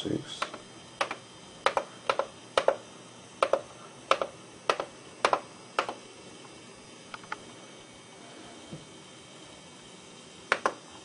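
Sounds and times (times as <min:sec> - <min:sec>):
synthesizer buttons clicking: 0:00.4 - 0:02.8, 0:03.4 - 0:06.0.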